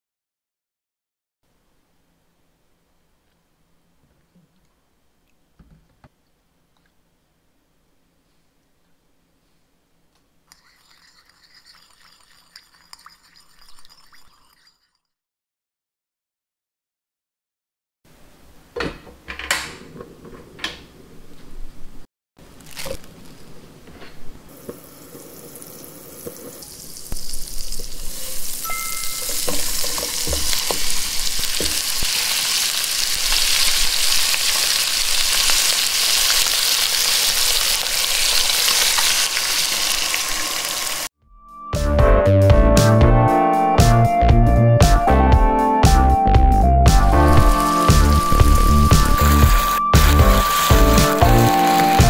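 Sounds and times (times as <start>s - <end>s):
chicken sizzling in a frying pan: 24.5s - 41.1s, 47.1s - 52.0s.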